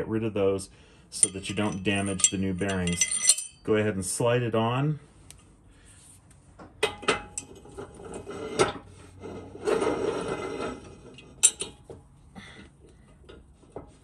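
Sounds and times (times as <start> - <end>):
metal scraping against metal: 1.1 - 4.0, 6.9 - 11.9.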